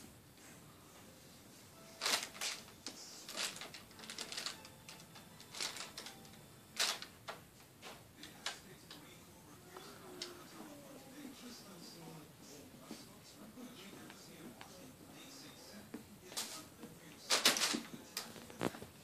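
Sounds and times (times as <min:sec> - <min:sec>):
paper crackling and rustling: 0:02.0 - 0:06.2.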